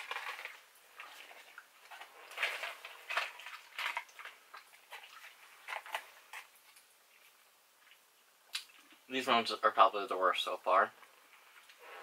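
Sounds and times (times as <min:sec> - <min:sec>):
candy wrapper crinkling: 0:00.0 - 0:00.6.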